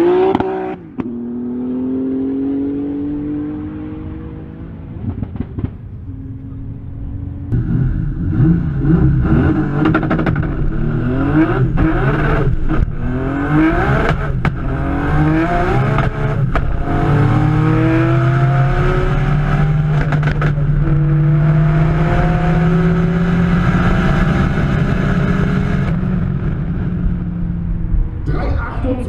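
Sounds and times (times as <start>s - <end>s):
turbocharged engine at full throttle: 0.0s - 29.0s.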